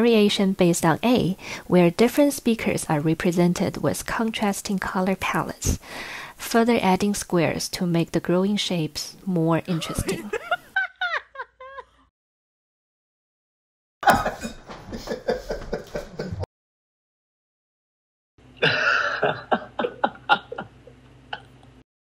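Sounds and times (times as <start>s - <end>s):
recorded laughter: 9.7s - 12.1s, 14.0s - 16.5s, 18.6s - 21.6s.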